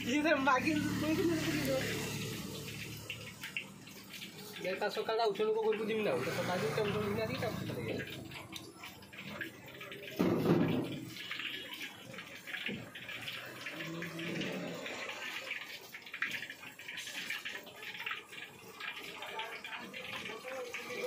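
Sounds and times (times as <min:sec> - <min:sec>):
deep-frying oil sizzling: 0:00.0 - 0:21.0.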